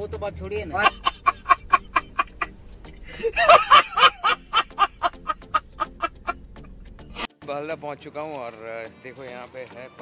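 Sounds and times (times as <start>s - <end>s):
man laughing loudly: 0.8s - 6.5s.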